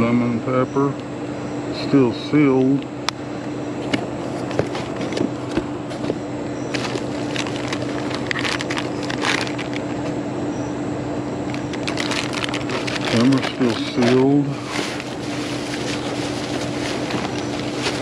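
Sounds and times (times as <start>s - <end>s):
steady low hum: 0.0s - 18.0s
plastic bag and wrappers rustling: 6.7s - 10.1s, 11.4s - 18.0s.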